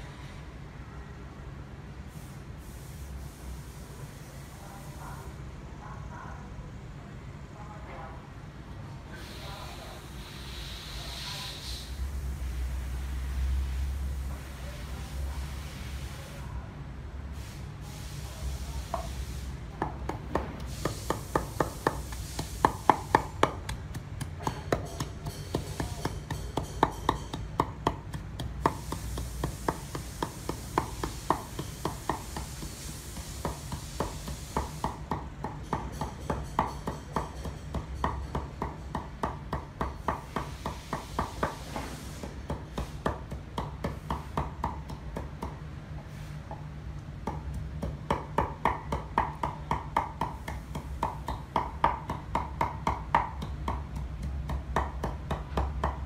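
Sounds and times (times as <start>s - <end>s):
knife chopping on wooden board: 19.8s - 46.6s, 47.2s - 56.0s.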